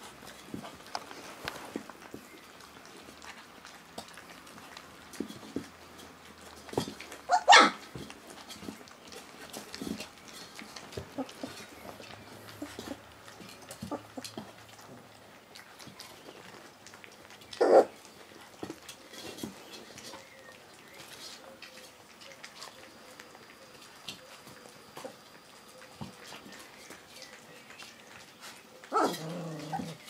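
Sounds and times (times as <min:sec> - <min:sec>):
puppies eating smacking: 0:00.0 - 0:30.0
puppy yelping: 0:07.3 - 0:07.8, 0:17.5 - 0:17.9, 0:28.8 - 0:30.0.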